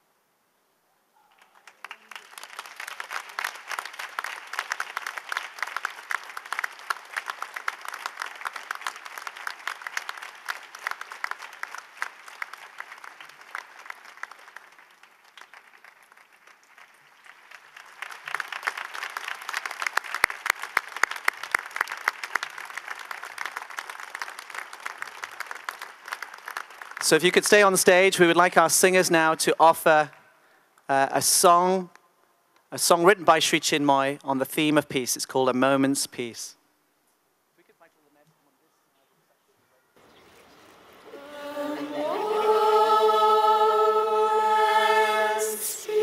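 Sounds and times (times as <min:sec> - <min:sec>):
crowd applauding: 0:01.3 - 0:28.0, 0:41.1 - 0:46.0.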